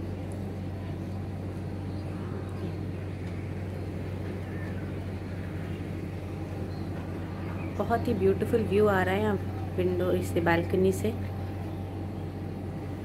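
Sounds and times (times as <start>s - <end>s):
low outdoor background hum: 0.0s - 13.0s.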